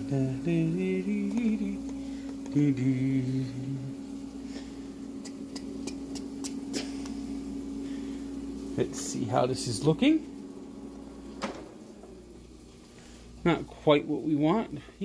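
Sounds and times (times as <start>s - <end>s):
man humming: 0.0s - 7.6s
steady low hum: 0.0s - 15.0s.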